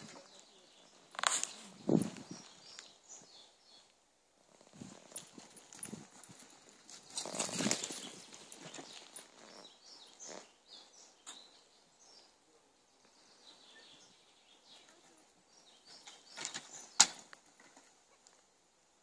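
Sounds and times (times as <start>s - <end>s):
dog paws scrabbling on gravel: 4.6s - 10.4s.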